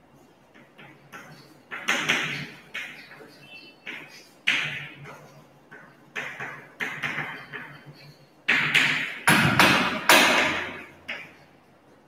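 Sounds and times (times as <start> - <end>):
chalk on blackboard: 0.5 - 8.8.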